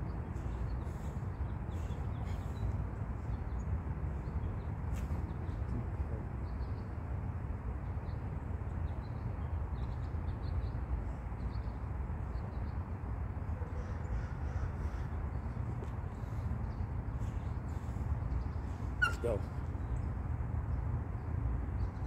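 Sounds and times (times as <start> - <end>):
faint bird chirps: 17.2 - 20.0.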